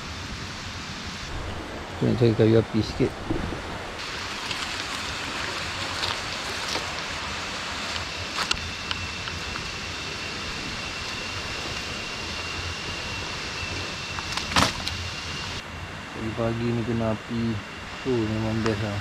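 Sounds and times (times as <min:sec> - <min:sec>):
river rushing: 0:03.0 - 0:09.8
dry sticks snapping: 0:07.9 - 0:09.8, 0:14.1 - 0:15.0.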